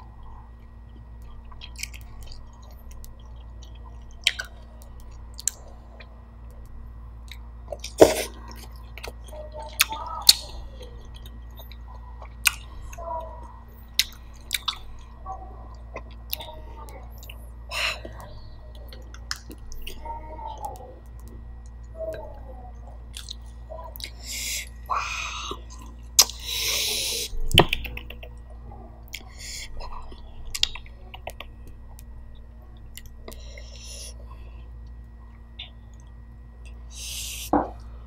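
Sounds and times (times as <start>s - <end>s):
wet chewing mouth clicks and smacks: 0.8s - 12.8s, 13.9s - 15.1s, 23.1s - 24.2s, 25.4s - 26.6s, 30.0s - 32.1s, 32.8s - 33.8s.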